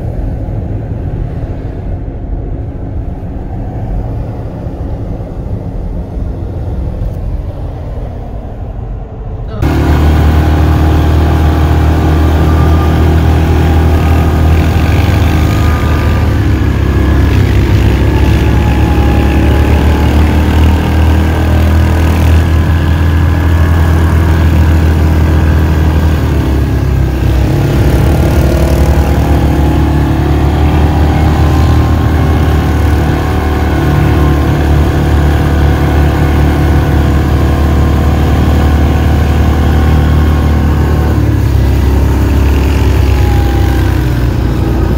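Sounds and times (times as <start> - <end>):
atv engine running: 9.6 - 44.9.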